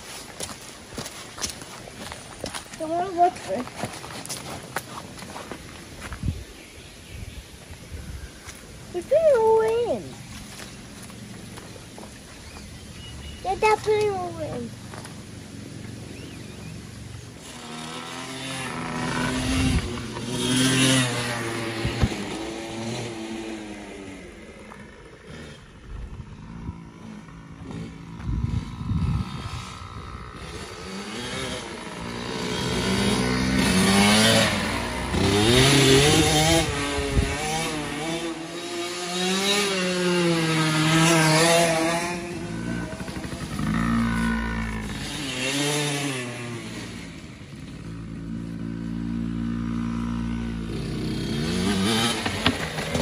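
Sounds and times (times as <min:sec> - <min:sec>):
dirt bike engine revving: 0:09.0 - 0:53.0.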